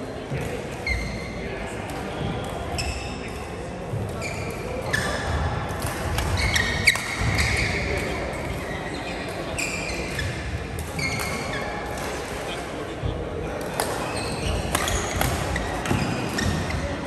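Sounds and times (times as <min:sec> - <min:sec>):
court shoes squeaking on floor: 0:00.4 - 0:03.2, 0:03.9 - 0:12.2, 0:13.7 - 0:17.0
racket hitting shuttlecock: 0:05.0 - 0:08.1, 0:13.6 - 0:16.8.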